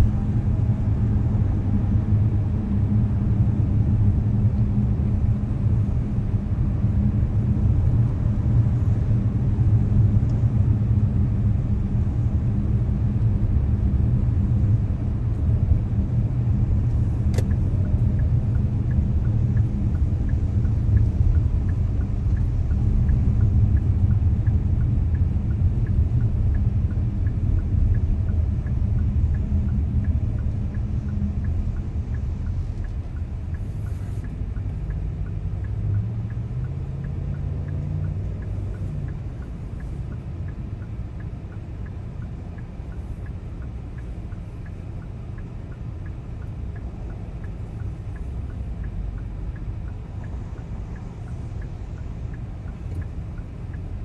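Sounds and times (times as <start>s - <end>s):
car engine and tyres rumbling: 0.0s - 54.0s
turn signal ticking: 0.0s - 54.0s.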